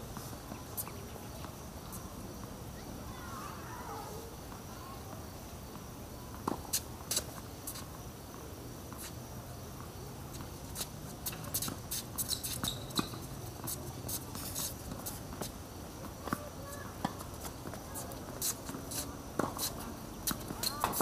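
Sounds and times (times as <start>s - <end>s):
faint insect hum: 0.0s - 21.0s
shoe scuffs: 10.4s - 15.6s, 17.8s - 21.0s
tennis ball bounces: 11.3s - 21.0s.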